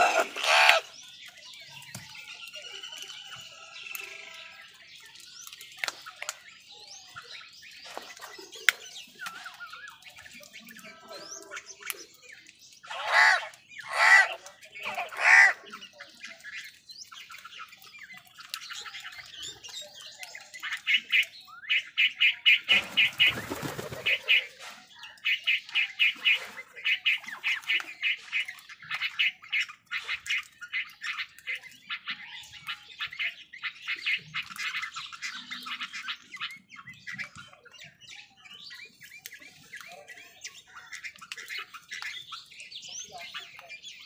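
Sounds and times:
crows cawing: 0.0s - 0.9s, 12.9s - 15.6s
crows calling and clicking: 0.0s - 44.0s.

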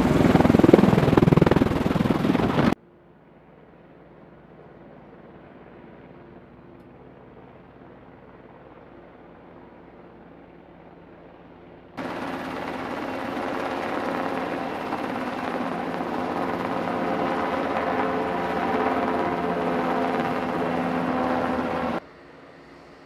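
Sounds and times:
helicopter rotor and turbine: 0.0s - 23.0s
steady whine: 12.0s - 22.9s.

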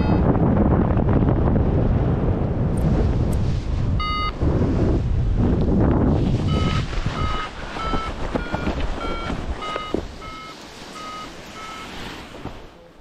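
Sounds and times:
wind noise on microphone: 0.0s - 12.8s
variometer beeping: 4.0s - 4.4s, 6.5s - 11.9s.

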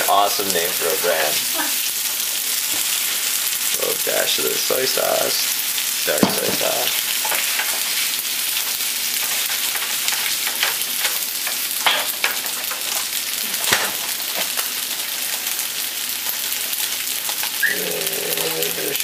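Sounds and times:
noodles sizzling in a frying pan: 0.0s - 19.0s
spatula knocking against pan: 6.2s - 6.7s.

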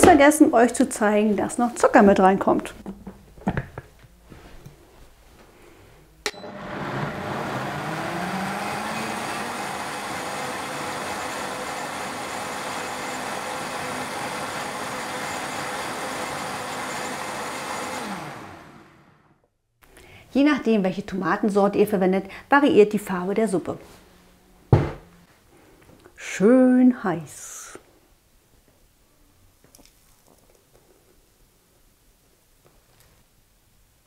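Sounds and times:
blender motor running: 6.3s - 19.3s.

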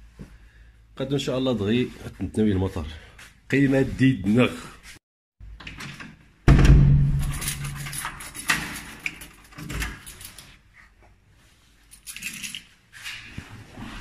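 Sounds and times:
keys jangling in lock: 7.2s - 10.6s, 11.9s - 12.7s.

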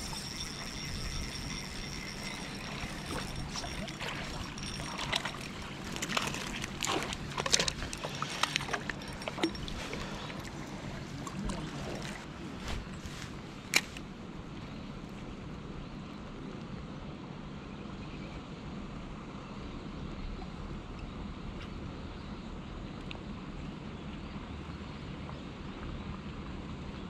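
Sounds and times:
water splashing and sloshing: 0.0s - 14.1s.

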